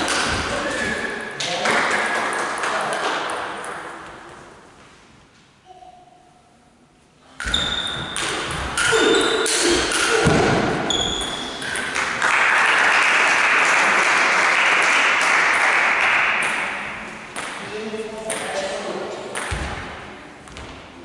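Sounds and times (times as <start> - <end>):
crowd applauding: 12.0 - 16.4.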